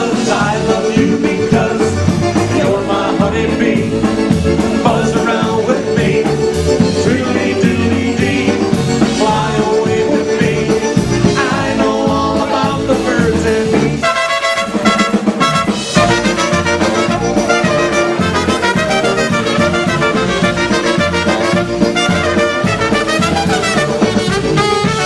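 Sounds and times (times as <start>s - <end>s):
accordion: 0.0s - 25.0s
drums with a steady beat: 0.0s - 25.0s
electric bass: 0.0s - 25.0s
electric guitar: 14.8s - 25.0s.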